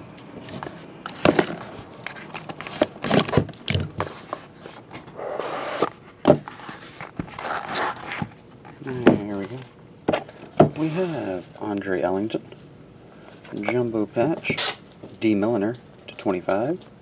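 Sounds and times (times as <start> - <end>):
cardboard box rustling and scraping: 0.5 - 9.5.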